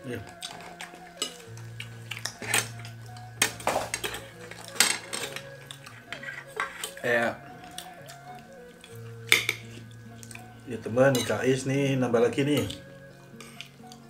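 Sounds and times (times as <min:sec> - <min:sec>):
spoons clinking on ceramic plates: 0:00.4 - 0:07.0, 0:09.3 - 0:09.8, 0:11.1 - 0:11.4.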